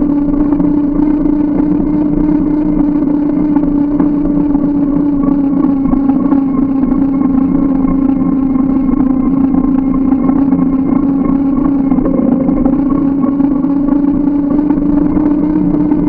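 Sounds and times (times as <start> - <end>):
bike engine hum: 0.0 - 16.0.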